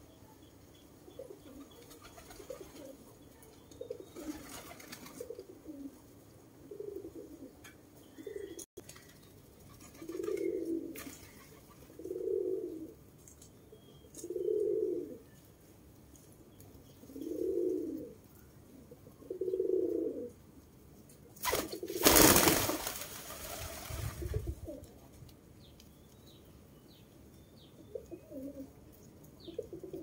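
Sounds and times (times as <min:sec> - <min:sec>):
pigeons cooing: 0:01.1 - 0:03.1, 0:03.7 - 0:06.0, 0:06.6 - 0:08.6, 0:09.7 - 0:13.0, 0:14.1 - 0:15.2, 0:17.0 - 0:18.2, 0:18.8 - 0:20.4, 0:23.3 - 0:24.9, 0:27.9 - 0:28.7, 0:29.4 - 0:30.0.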